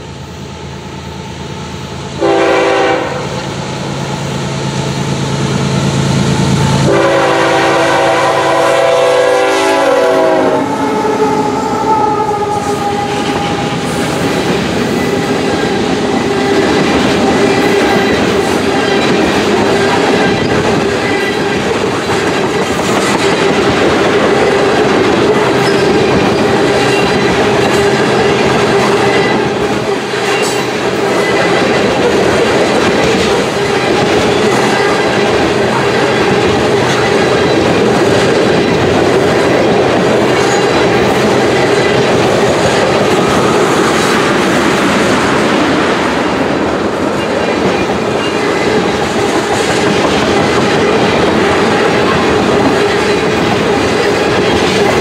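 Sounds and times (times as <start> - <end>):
train wheels clickety-clack on rails: 0.0 - 0.3, 2.0 - 55.0
locomotive horn blasts: 2.2 - 3.4, 6.8 - 14.0.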